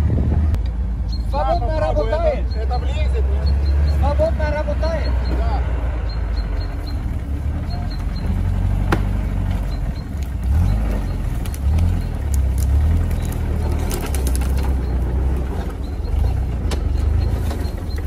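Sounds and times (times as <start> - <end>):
off-road vehicle engine under load: 0.0 - 18.0
sharp cracks: 10.1 - 14.8.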